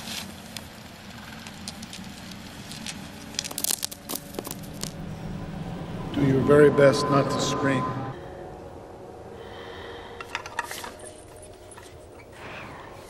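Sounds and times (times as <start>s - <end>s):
dry crackling and rustling: 0.0s - 5.4s
low steady hum: 0.0s - 13.0s.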